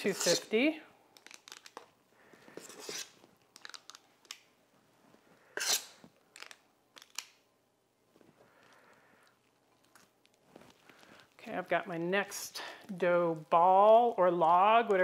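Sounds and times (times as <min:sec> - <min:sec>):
dough scraping in metal bowl: 0:00.0 - 0:00.5.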